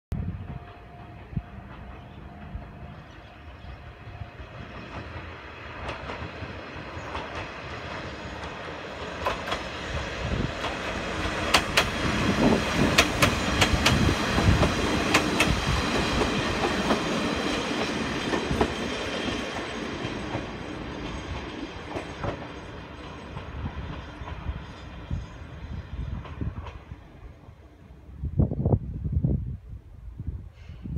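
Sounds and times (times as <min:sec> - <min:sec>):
diesel railcar passing: 0:00.1 - 0:29.8
train wheels clicking on rails: 0:04.5 - 0:27.0.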